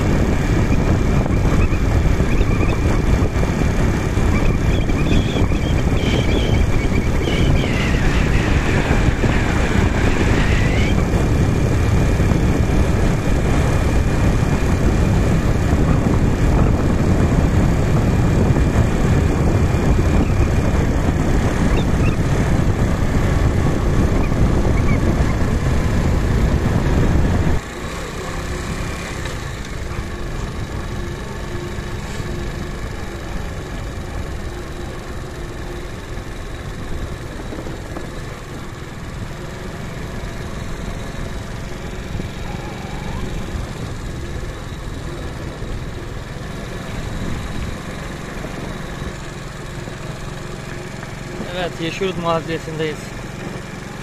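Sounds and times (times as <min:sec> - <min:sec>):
wind buffeting microphone: 0:00.0 - 0:27.7
vehicle road and engine noise: 0:00.0 - 0:54.0.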